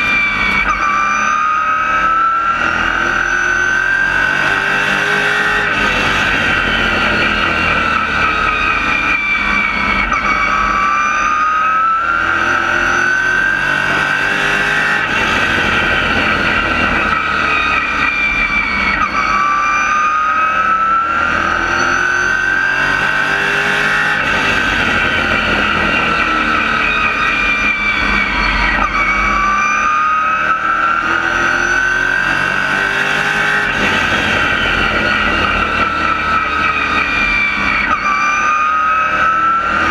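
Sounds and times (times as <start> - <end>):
race car engine: 0.0 - 39.9.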